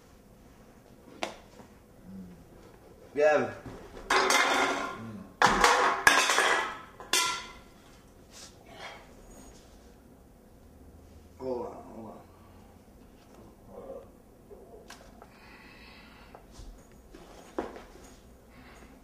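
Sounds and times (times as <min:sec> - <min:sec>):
cans clattering on wooden table: 0:04.1 - 0:07.6.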